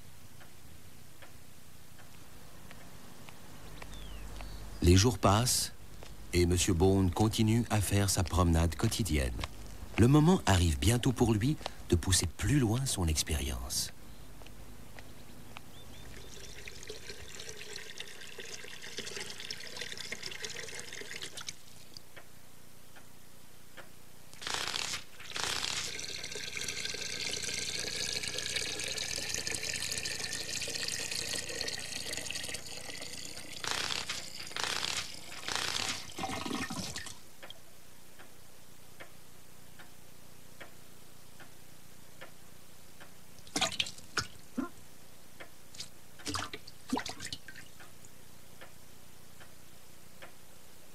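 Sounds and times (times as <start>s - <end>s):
water drips: 15.6s - 22.1s, 26.0s - 33.6s, 43.4s - 44.5s, 45.7s - 48.2s.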